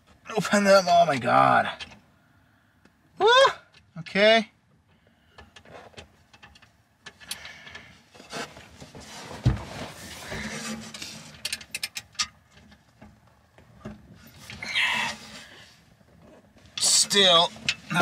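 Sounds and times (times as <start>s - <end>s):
clothing rustle: 8.2s - 11.4s.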